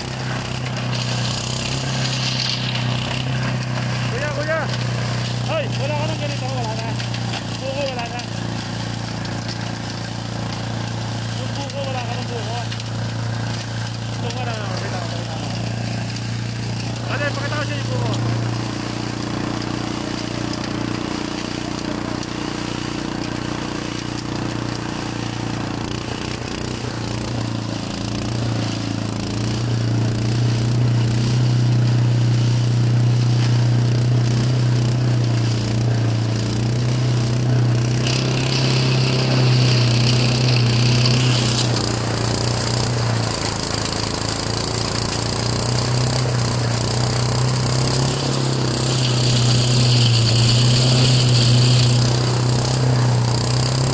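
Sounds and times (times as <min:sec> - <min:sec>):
engine-driven shredder running: 0:00.0 - 0:53.9
harsh high grinding: 0:00.0 - 0:53.9.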